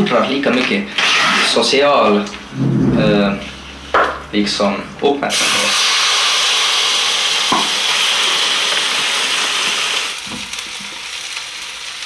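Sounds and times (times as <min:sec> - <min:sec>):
food sizzling in a frying pan: 0:05.7 - 0:12.0.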